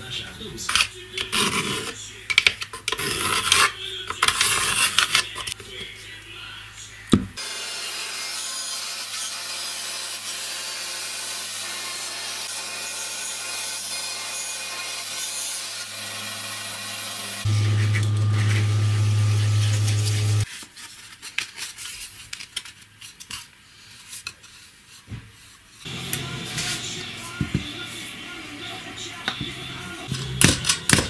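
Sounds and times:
band saw cutting plywood: 0:07.4 - 0:20.5.

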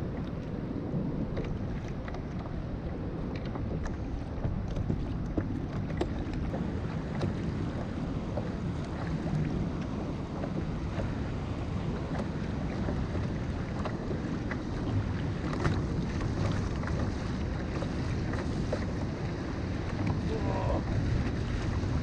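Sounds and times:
rough sea: 0:00.0 - 0:22.0
water splashing around kayak: 0:00.0 - 0:22.0
wind noise on microphone: 0:00.0 - 0:22.0.

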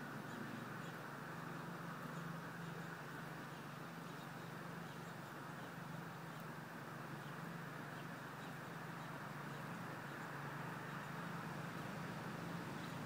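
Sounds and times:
constant low hum: 0:00.0 - 0:13.0
faint bird chirps: 0:02.0 - 0:06.6.

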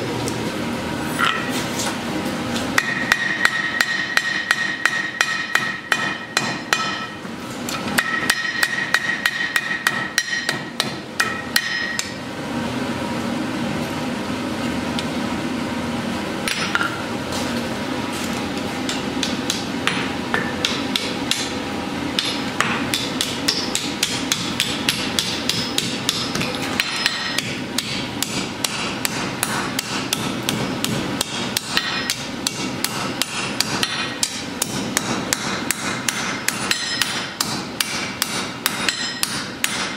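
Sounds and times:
hammer striking steel on anvil: 0:02.8 - 0:12.2, 0:16.4 - 0:17.0, 0:18.9 - 0:21.6, 0:22.2 - 0:39.9.

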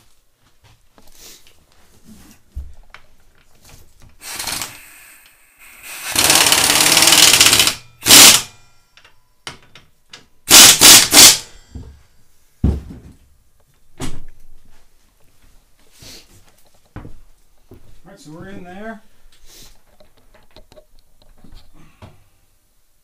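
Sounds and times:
impact wrench hammering: 0:05.9 - 0:09.8, 0:10.5 - 0:11.9
knock: 0:12.6 - 0:13.2.

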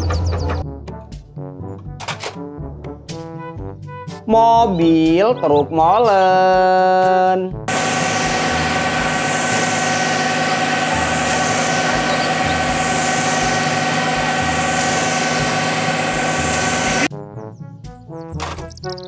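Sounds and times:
truck engine running with whine: 0:00.0 - 0:00.6, 0:07.7 - 0:17.1
concrete pouring down chute: 0:07.7 - 0:17.1.

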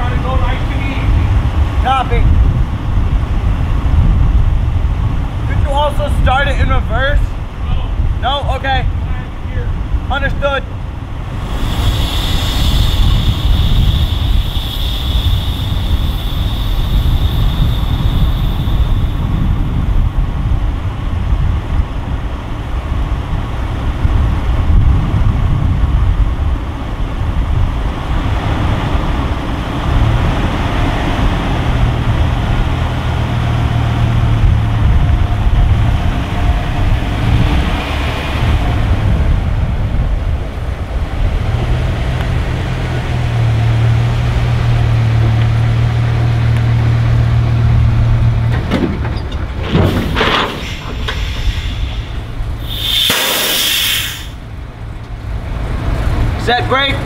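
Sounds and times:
heavy truck engine running: 0:08.8 - 0:57.0.

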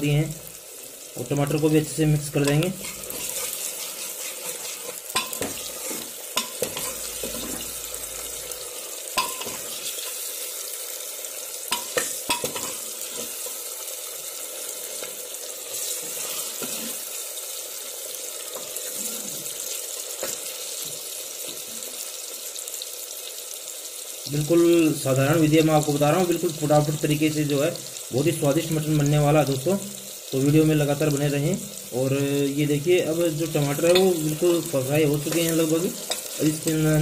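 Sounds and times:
vegetables sizzling in hot oil: 0:00.0 - 0:37.0
ladle clinking against pot: 0:05.1 - 0:05.6.

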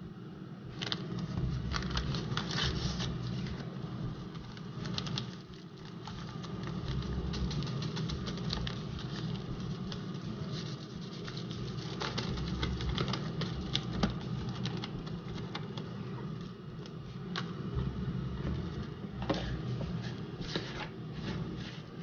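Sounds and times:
air fryer fan humming: 0:00.0 - 0:22.0
seasoning packet crinkling: 0:04.2 - 0:15.9.

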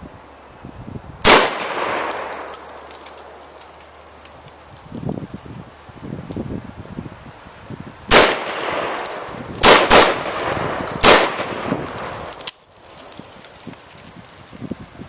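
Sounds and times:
shotgun shots echoing: 0:01.2 - 0:02.9, 0:08.1 - 0:12.1.

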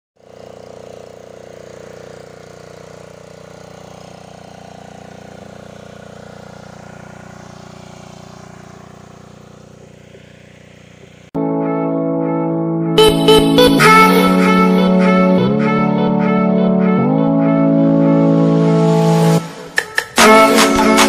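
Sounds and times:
small engine running steadily: 0:00.2 - 0:11.4, 0:13.0 - 0:21.0.

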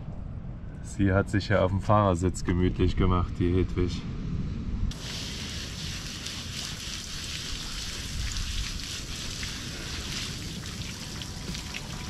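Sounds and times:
wind rumble on microphone: 0:00.0 - 0:12.0
shower water spraying and splashing: 0:04.9 - 0:12.0.

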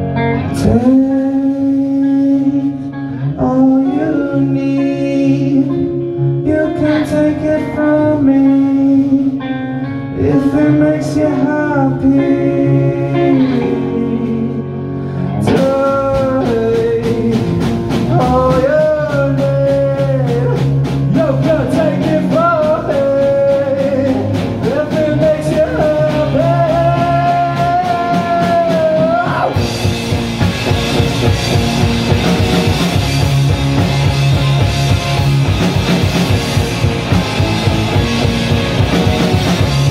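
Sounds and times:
electric guitar: 0:00.0 - 0:39.9
man singing: 0:00.3 - 0:29.9
drum kit: 0:15.4 - 0:39.9.

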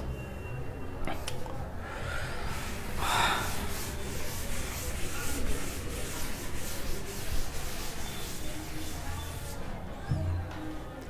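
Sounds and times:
cloth wiping chalkboard: 0:02.5 - 0:09.8.

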